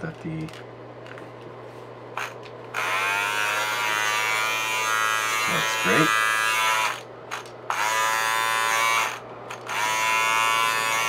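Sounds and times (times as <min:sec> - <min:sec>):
beard trimmer buzzing: 0:02.2 - 0:11.0.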